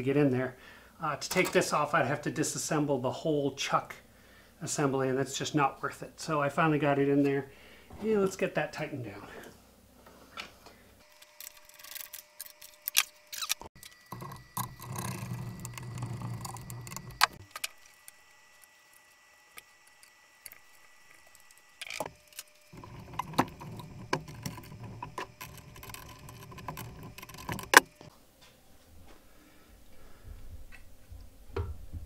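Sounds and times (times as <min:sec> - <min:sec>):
handling and rubbing noise: 0:13.6 - 0:17.5, 0:19.7 - 0:32.0.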